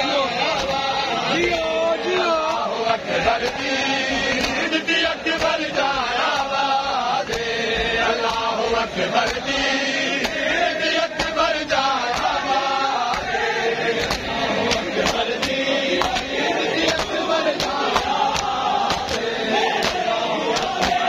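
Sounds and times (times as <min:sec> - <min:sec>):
men chanting a lament: 0:00.0 - 0:21.0
chest-beating slaps: 0:00.5 - 0:00.9, 0:04.3 - 0:06.6, 0:07.2 - 0:07.5, 0:09.2 - 0:11.4, 0:12.0 - 0:13.4, 0:14.0 - 0:21.0.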